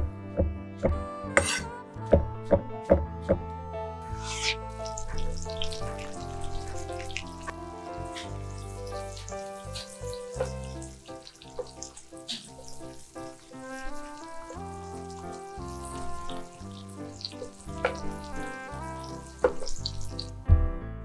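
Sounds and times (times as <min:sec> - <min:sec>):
background music with bass: 0:00.0 - 0:11.8, 0:12.5 - 0:21.0
vegetables sizzling in a pan: 0:04.1 - 0:20.4.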